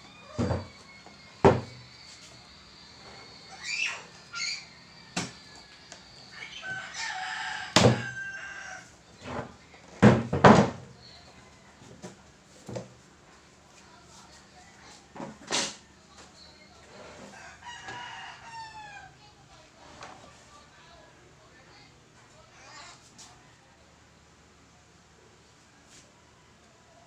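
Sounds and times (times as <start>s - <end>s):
rooster crowing: 0.0s - 9.0s, 17.0s - 19.2s.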